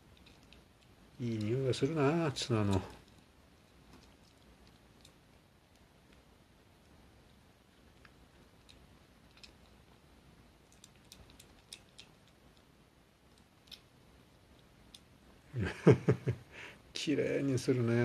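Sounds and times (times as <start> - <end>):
kitten licking and chewing: 0.0 - 1.2, 2.7 - 15.2
man's voice: 1.2 - 3.0, 17.0 - 18.0.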